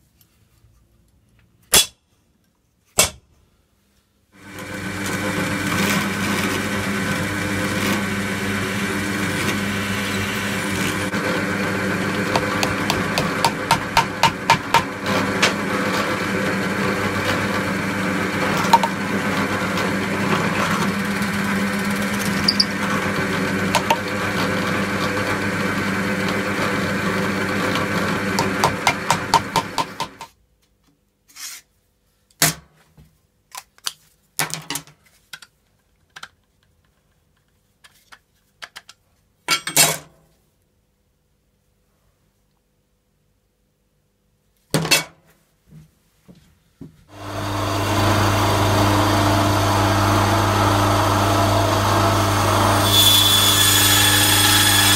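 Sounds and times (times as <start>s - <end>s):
drill press motor running: 4.4s - 30.2s, 47.1s - 54.9s.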